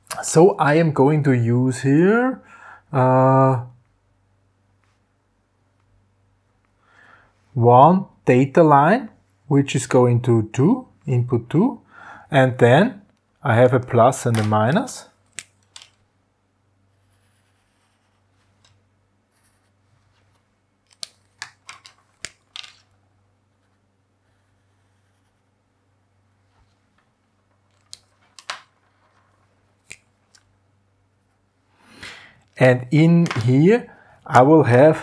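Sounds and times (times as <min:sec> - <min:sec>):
faint low hum: 0:00.0 - 0:35.0
pen scratching on paper: 0:16.9 - 0:18.3, 0:23.6 - 0:25.4.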